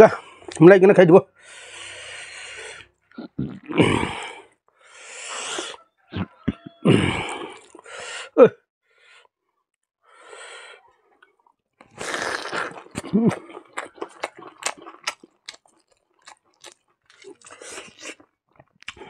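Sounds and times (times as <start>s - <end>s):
man breathing sharply: 1.4s - 2.9s, 4.1s - 5.8s, 10.1s - 10.8s
lip and tongue clicks: 11.2s - 19.0s.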